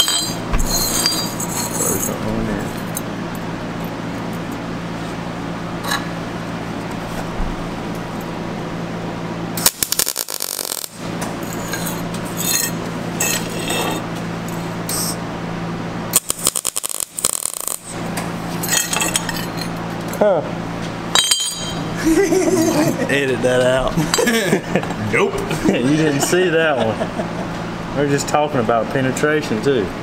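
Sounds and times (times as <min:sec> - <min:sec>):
welder arc crackling: 0:09.6 - 0:12.6, 0:16.2 - 0:18.0.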